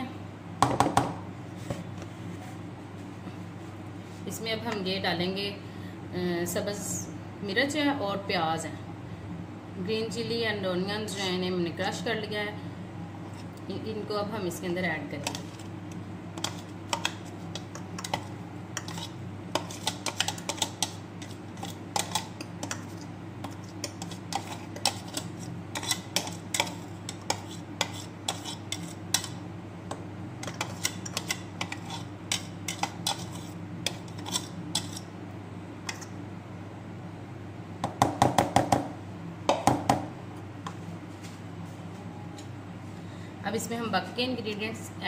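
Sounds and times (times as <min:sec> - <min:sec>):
steady low hum: 0:00.0 - 0:45.0
spoon scraping plastic container: 0:16.4 - 0:29.4, 0:30.4 - 0:35.1.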